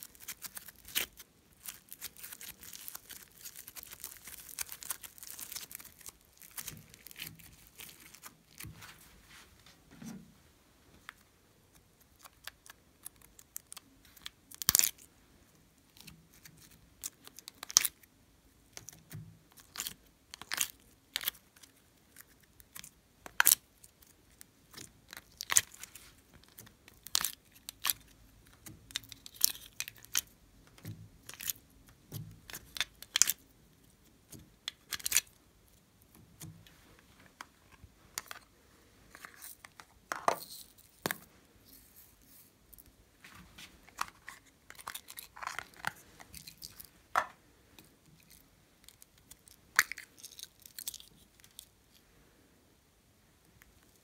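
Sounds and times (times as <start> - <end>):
sticky slime tearing: 0.0 - 8.7
plastic containers crackling: 43.3 - 47.4.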